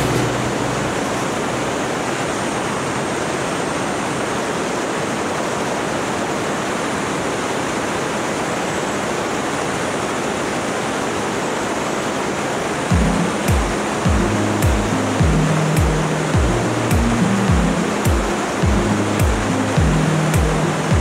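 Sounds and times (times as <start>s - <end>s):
airflow rushing: 0.0s - 3.2s.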